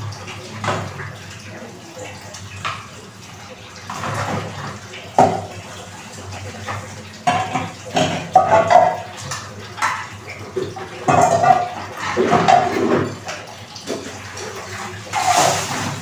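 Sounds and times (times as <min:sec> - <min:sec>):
water splashing and pouring: 0:00.0 - 0:16.0
pans knocking: 0:05.2 - 0:05.6, 0:07.2 - 0:09.1, 0:09.8 - 0:13.3.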